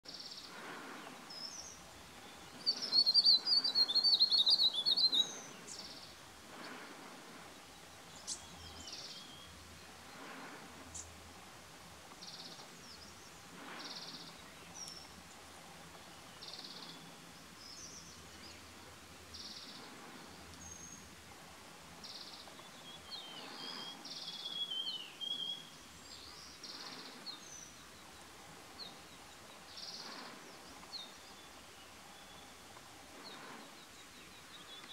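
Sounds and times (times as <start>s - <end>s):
high bird chirps: 2.5s - 6.0s.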